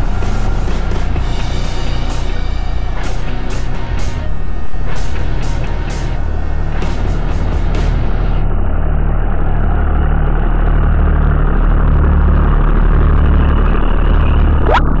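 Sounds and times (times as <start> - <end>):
tractor engine running: 0.0 - 14.3
brief rising tone: 14.6 - 15.0.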